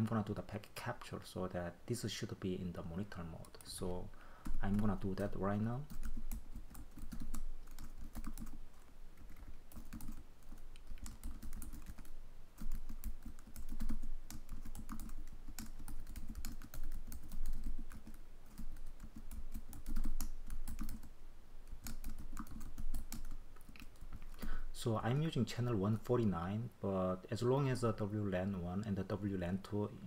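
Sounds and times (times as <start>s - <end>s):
computer keyboard typing: 3.4s - 21.1s, 21.7s - 24.5s.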